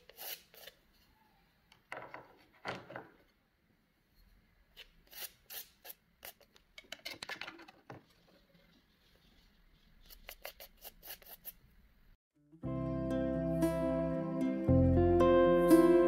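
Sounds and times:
palette knife scraping paint: 0.0s - 1.0s, 4.7s - 6.6s, 8.1s - 11.6s.

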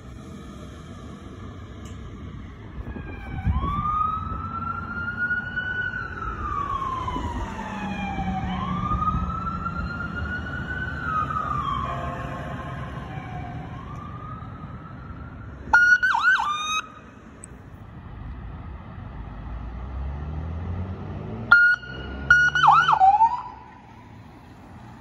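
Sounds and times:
ambulance siren wailing: 0.0s - 17.0s, 21.5s - 24.1s.

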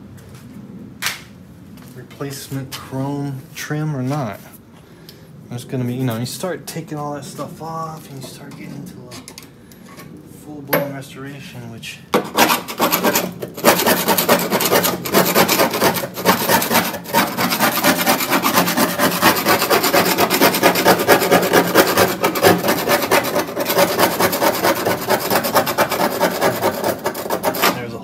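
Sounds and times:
scraping on sheet metal: 12.1s - 28.0s.

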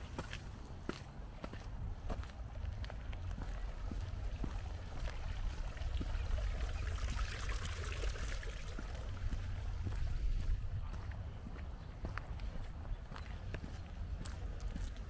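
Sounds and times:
fountain water trickling and splashing: 4.7s - 10.0s.

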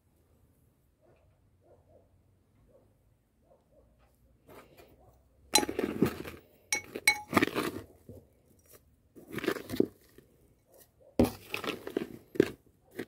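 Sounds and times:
metal spoon clinks: 5.6s - 5.8s, 6.8s - 7.4s
soil pouring into plastic pot: 8.6s - 10.5s, 11.2s - 13.0s.

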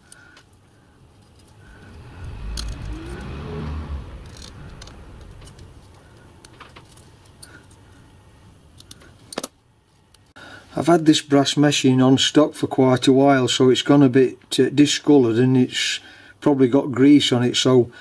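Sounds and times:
low rumble: 1.0s - 7.5s.

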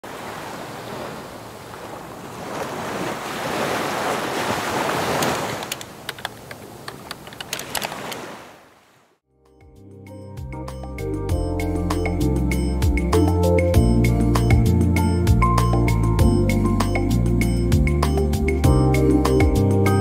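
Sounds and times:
waves rushing in: 0.0s - 9.2s.

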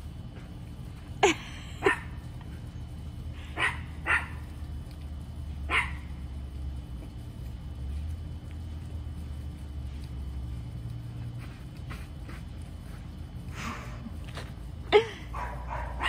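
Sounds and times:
small dog barking: 1.8s - 2.2s, 3.5s - 4.5s, 5.7s - 6.2s, 15.3s - 16.0s.

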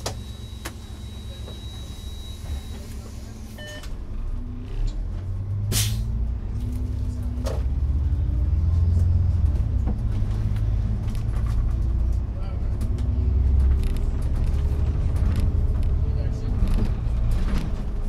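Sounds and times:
bus engine rumble: 0.0s - 18.0s
short electronic beep: 0.2s - 3.9s.

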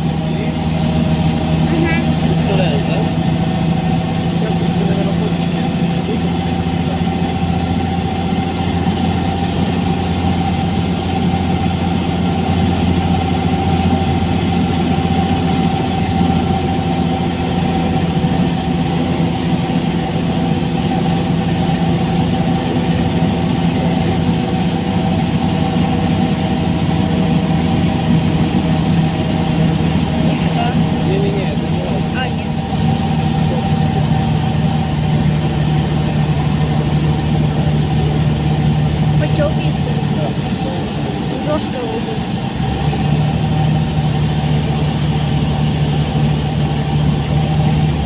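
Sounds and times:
bus engine humming: 0.0s - 48.0s.

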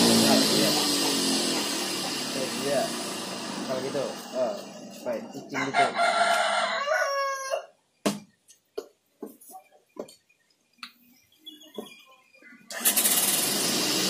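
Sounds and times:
rooster crowing: 5.5s - 7.8s.

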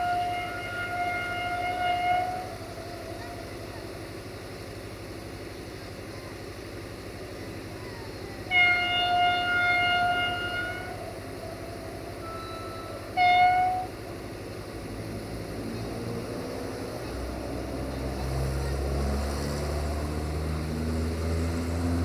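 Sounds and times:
locomotive horn blasts: 0.0s - 3.4s, 8.4s - 14.0s.

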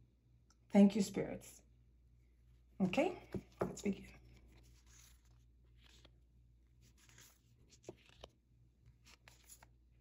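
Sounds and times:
cards rustling: 3.2s - 10.0s.

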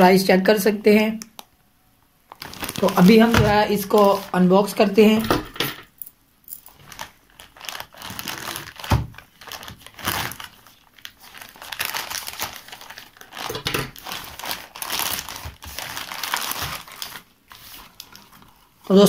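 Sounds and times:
plastic bag tearing and crinkling: 2.3s - 4.4s, 6.7s - 18.9s.

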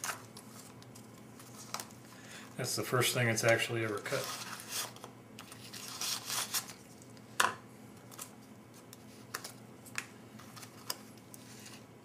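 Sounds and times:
foil pouch crinkling: 3.8s - 7.1s.

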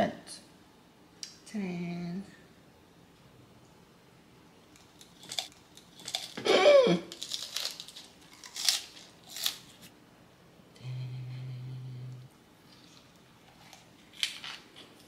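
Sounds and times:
steady low hum: 0.0s - 15.0s
crunchy food chewing: 4.7s - 6.5s, 7.1s - 9.9s, 12.7s - 15.0s.

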